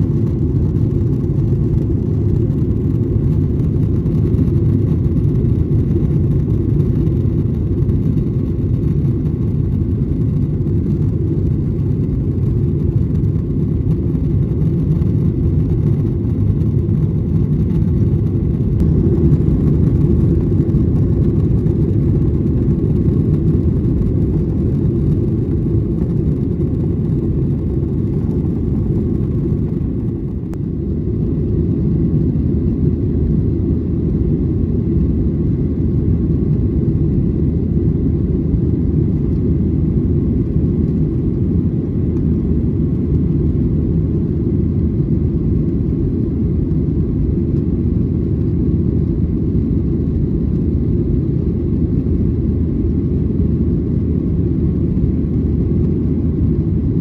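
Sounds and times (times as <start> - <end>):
jet engine roar in cabin: 0.0 - 57.0.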